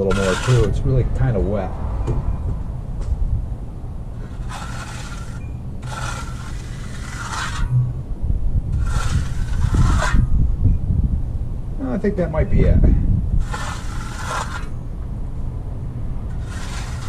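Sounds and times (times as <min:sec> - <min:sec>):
steel trowel scraping wet concrete: 0:00.0 - 0:00.8, 0:04.2 - 0:07.8, 0:08.8 - 0:10.3, 0:13.4 - 0:14.8, 0:16.3 - 0:17.0
low rumble: 0:00.0 - 0:17.0.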